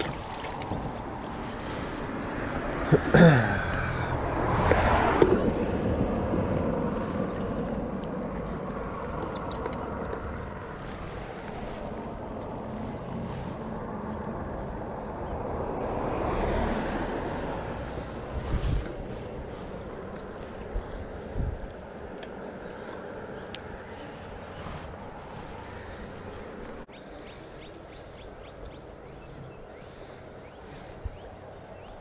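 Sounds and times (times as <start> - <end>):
wind buffeting microphone: 0.0 - 2.8, 4.2 - 26.9
vehicle passing over bridge: 0.0 - 7.9, 12.7 - 20.4
road traffic: 0.0 - 32.0.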